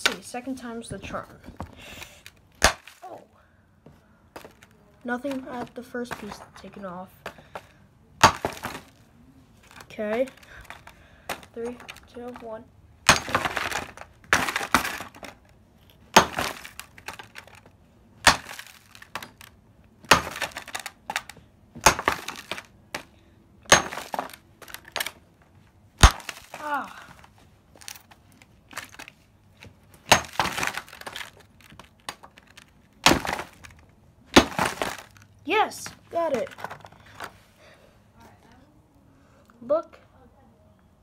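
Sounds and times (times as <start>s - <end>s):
hammer striking rock: 2.6s - 2.9s, 8.2s - 8.8s, 13.1s - 15.0s, 16.1s - 16.6s, 18.2s - 19.4s, 20.1s - 21.2s, 21.8s - 23.1s, 23.7s - 24.4s, 26.0s - 26.5s, 30.1s - 31.1s.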